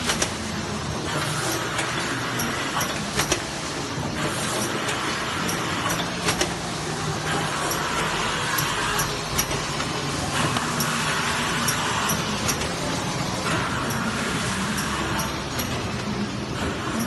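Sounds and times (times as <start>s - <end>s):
machine humming: 0.0s - 17.0s
sharp machine clacks: 4.2s - 6.6s, 7.3s - 17.0s.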